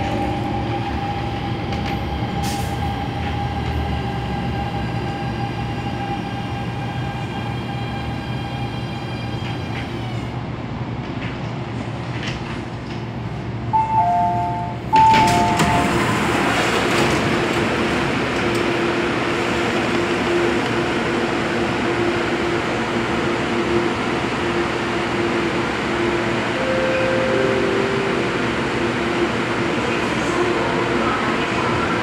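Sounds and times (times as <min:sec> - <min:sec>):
train doors sliding open: 0:01.6 - 0:03.8, 0:11.0 - 0:20.8
station noise: 0:13.8 - 0:17.7, 0:24.5 - 0:32.0
low tone: 0:26.6 - 0:28.6.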